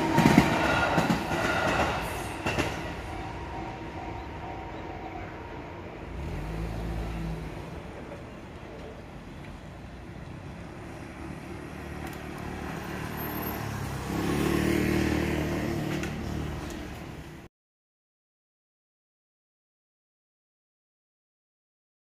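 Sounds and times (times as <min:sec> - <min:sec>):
cars pulling away: 0:06.0 - 0:08.6, 0:10.3 - 0:17.3
loud vehicle passing close: 0:12.4 - 0:16.7.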